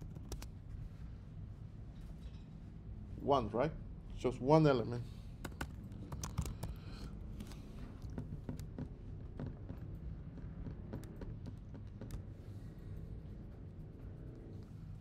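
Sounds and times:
keyboard and mouse clicks: 0.0 - 0.5, 5.4 - 12.5
low room hum: 0.0 - 15.0.

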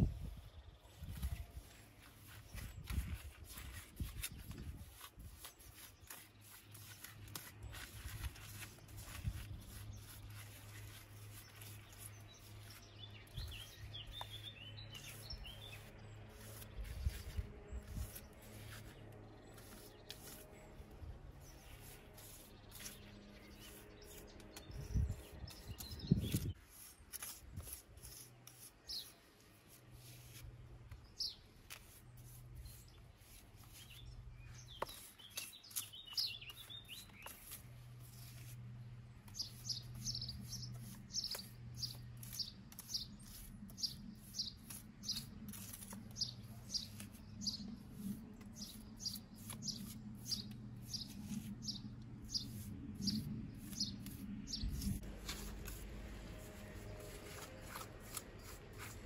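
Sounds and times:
small bird chirping: 0.1 - 18.7, 28.0 - 29.2, 31.0 - 38.5, 39.3 - 55.5
hand tools scraping mortar on stone: 1.1 - 59.0.

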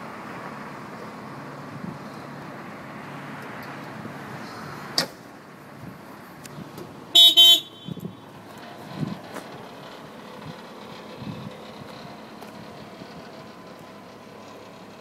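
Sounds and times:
diesel engine idling: 5.2 - 15.0
short loud horn toots: 7.2 - 8.0.

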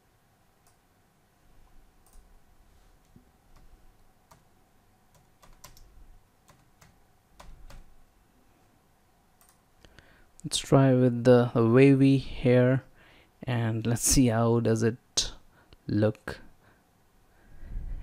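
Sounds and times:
computer keyboard clicks: 4.3 - 4.5, 5.1 - 7.9, 9.4 - 9.6.

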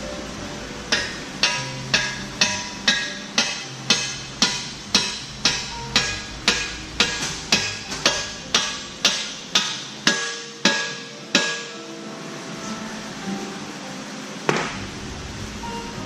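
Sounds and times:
hammer striking steel pin: 0.9 - 11.8.

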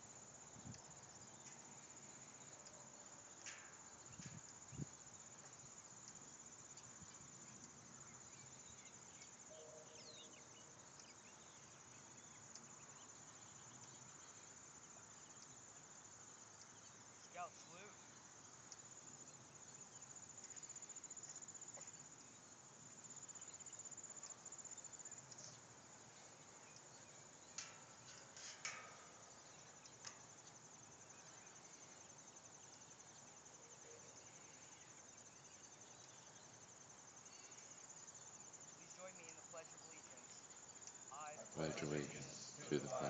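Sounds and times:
crickets chirring: 0.0 - 43.0.

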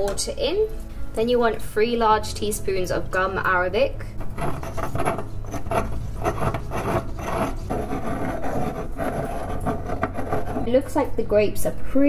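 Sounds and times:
stone pestle grinding in mortar: 4.2 - 10.9.

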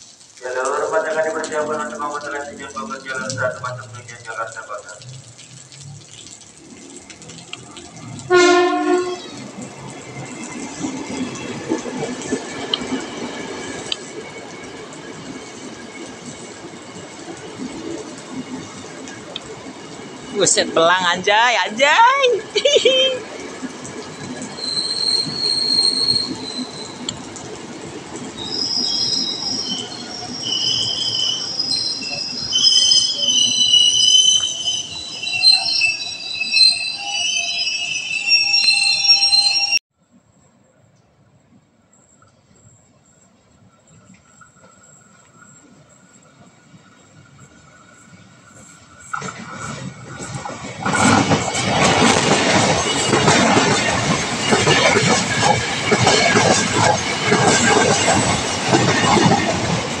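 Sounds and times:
rumble and hiss of passing cars: 0.0 - 12.9
train rolling with low rumble: 0.0 - 60.0
train wheels clattering on rails: 9.2 - 20.8, 43.7 - 60.0
high-pitched squealing: 24.4 - 27.1, 28.4 - 39.8.

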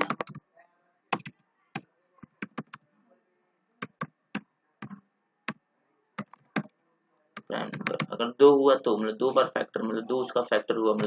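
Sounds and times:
keyboard typing: 0.0 - 0.4, 1.1 - 2.8, 3.8 - 5.6, 6.2 - 6.7, 7.4 - 8.2.

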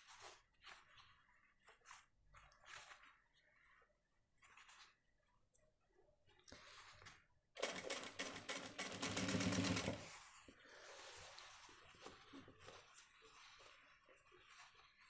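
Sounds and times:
sewing machine stitching: 7.6 - 10.2.

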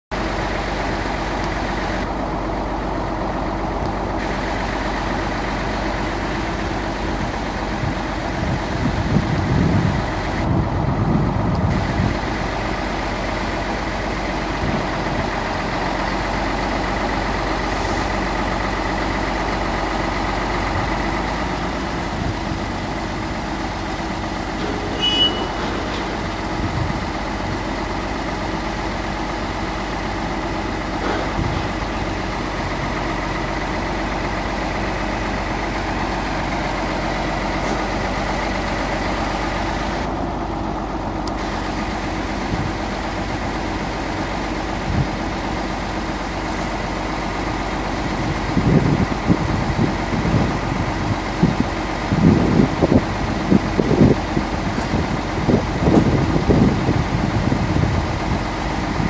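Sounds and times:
diesel engine running: 0.1 - 59.0
short high-pitched sound: 24.7 - 25.9.

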